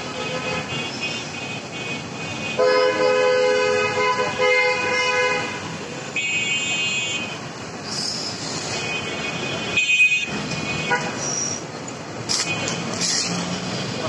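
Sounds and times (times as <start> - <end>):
street noise: 0.0 - 14.0
vehicle horn long blast: 0.1 - 7.3.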